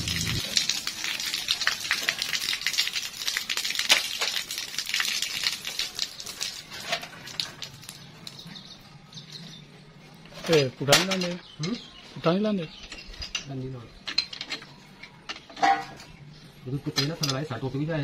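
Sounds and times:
water dripping: 0.0s - 8.6s
water pouring and splashing: 0.0s - 8.6s.

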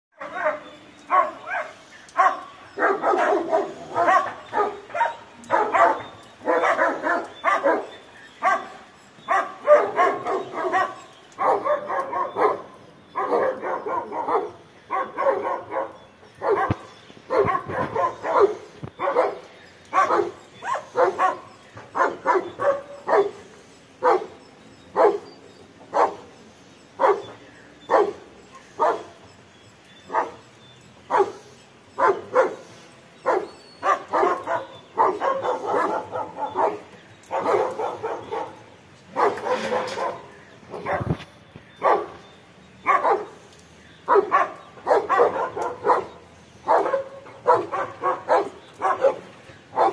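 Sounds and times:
dog barking: 0.2s - 23.4s, 24.0s - 25.3s, 25.9s - 26.2s, 27.0s - 28.2s, 28.8s - 29.1s, 30.1s - 30.4s, 31.1s - 31.4s, 32.0s - 32.6s, 33.2s - 41.2s, 41.8s - 42.2s, 42.8s - 43.4s, 44.1s - 49.9s.

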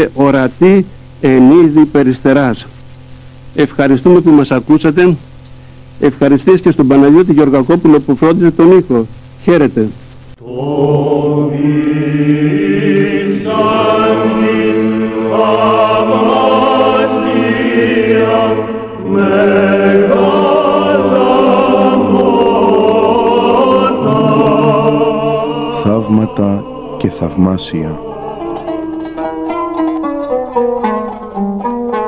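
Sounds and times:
choir chanting held notes: 10.4s - 30.4s.

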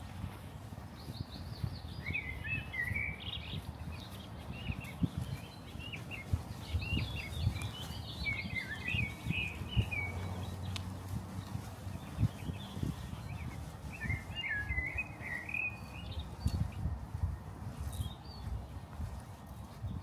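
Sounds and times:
small birds chirping and twittering: 0.0s - 20.0s
steady low rumble: 3.7s - 19.1s.

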